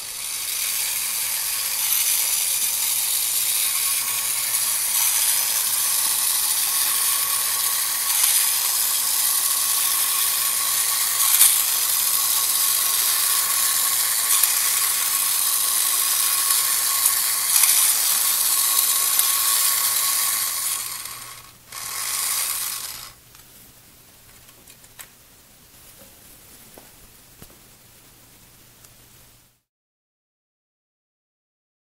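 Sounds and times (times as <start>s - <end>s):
toy robot motor whirring: 0.0s - 23.2s.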